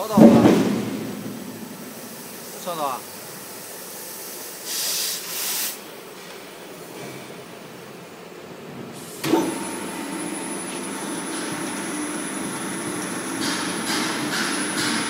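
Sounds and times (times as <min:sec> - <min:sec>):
machine starting clunk: 0:00.0 - 0:02.2, 0:09.2 - 0:09.8
machine motor hum and whine: 0:09.2 - 0:15.0.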